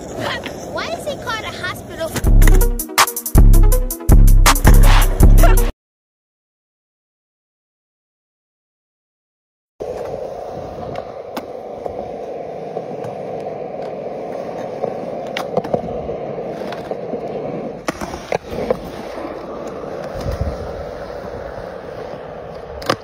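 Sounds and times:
skateboard wheels rolling on concrete: 0:00.0 - 0:05.6, 0:09.8 - 0:23.0
skateboard clacking on ground: 0:09.8 - 0:23.0.

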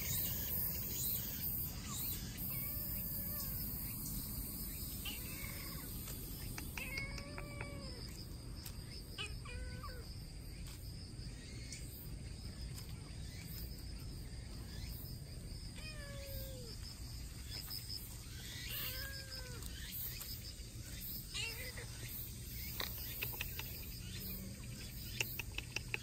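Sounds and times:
high insect buzz: 0:00.0 - 0:26.0
kitten meowing: 0:06.7 - 0:08.0, 0:18.7 - 0:19.7.

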